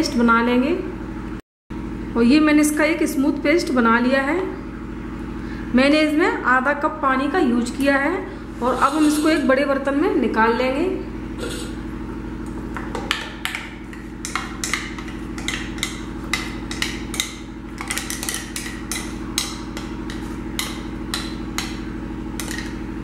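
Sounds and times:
steady low hum: 0.0 - 23.0
spoon tapping steel jar: 13.4 - 21.8.

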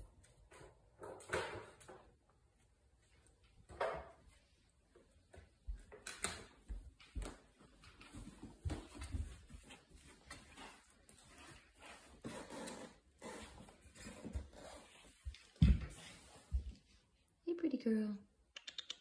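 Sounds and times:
puppy paws clicking on tile: 5.2 - 11.2, 18.4 - 19.0.

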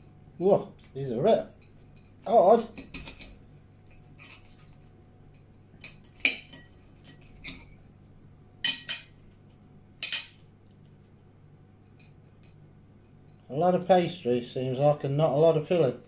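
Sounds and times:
cutlery clinking on plate: 5.8 - 7.7, 8.6 - 9.2, 10.0 - 10.4.

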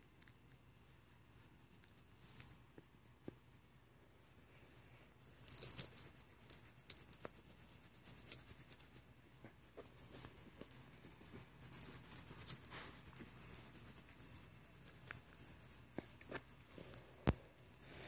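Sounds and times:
dog collar tag jingling: 5.4 - 6.1, 9.6 - 18.0
hand scratching fur: 5.5 - 9.1, 10.0 - 16.7.

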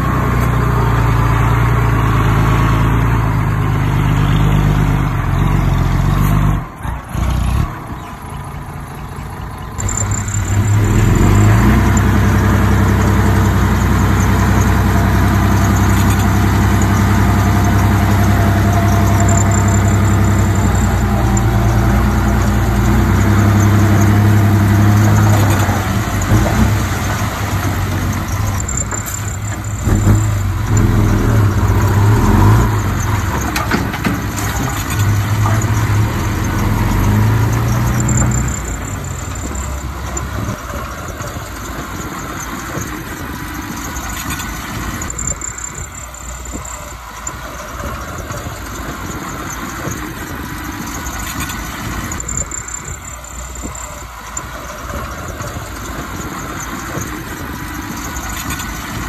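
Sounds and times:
heavy diesel engine under load: 0.0 - 59.0.

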